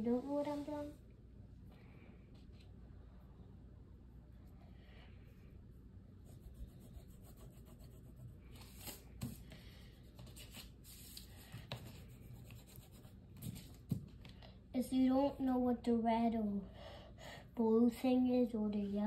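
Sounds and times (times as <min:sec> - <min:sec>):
low room hum: 0:00.0 - 0:19.0
drawing tool scratching paper: 0:06.2 - 0:09.3.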